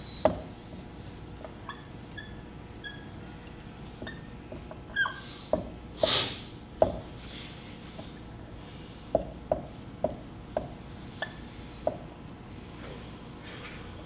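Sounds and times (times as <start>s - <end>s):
marker squeaking on whiteboard: 1.5s - 3.2s, 4.0s - 4.3s, 4.9s - 5.4s.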